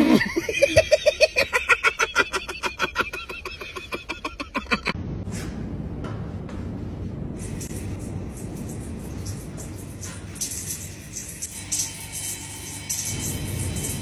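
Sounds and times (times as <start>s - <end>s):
people laughing hard: 0.0s - 5.0s.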